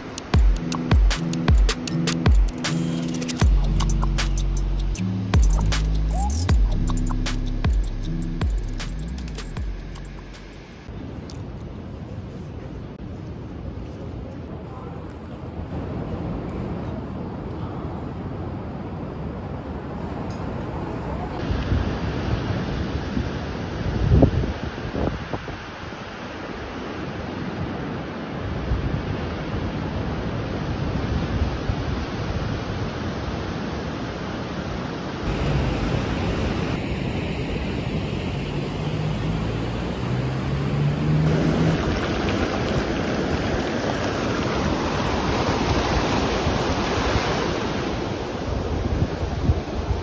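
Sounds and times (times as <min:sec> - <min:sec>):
wind buffeting microphone: 0:15.2 - 0:26.6, 0:41.2 - 0:50.0
waves breaking on beach: 0:19.8 - 0:50.0.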